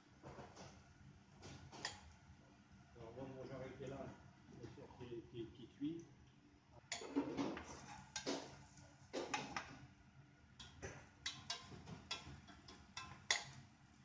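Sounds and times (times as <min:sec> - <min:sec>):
wooden spoon scraping saucepan: 0:06.9 - 0:08.6.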